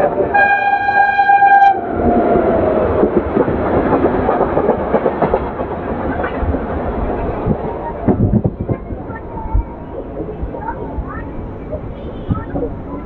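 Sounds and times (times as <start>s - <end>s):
train horn blast: 0.0s - 1.9s
train rumble: 0.0s - 13.0s.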